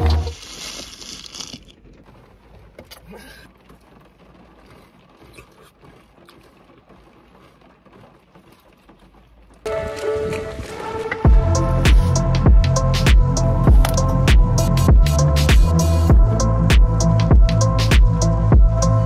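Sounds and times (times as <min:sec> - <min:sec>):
spoons scraping in plastic cups: 0:00.0 - 0:01.7.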